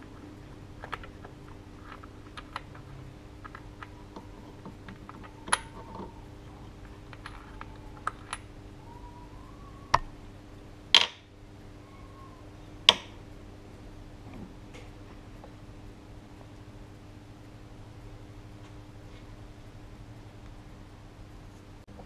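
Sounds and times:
small metal parts clicking: 0.0s - 8.6s.

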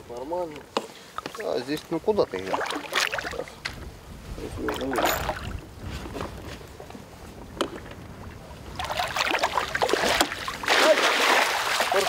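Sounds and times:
water lapping against boat hull: 1.1s - 3.9s, 4.5s - 6.4s, 7.5s - 12.0s
fish splashing: 2.3s - 3.6s, 8.7s - 12.0s.

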